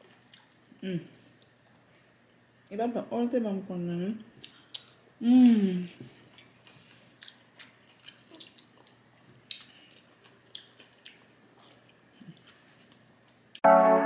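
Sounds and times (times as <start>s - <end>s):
chewing: 0.0s - 0.6s, 5.8s - 13.4s.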